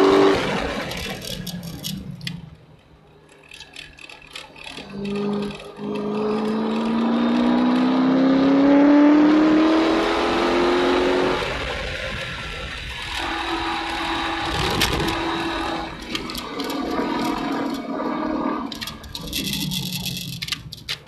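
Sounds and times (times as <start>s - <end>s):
car engine accelerating: 0.0s - 2.5s, 4.6s - 20.7s.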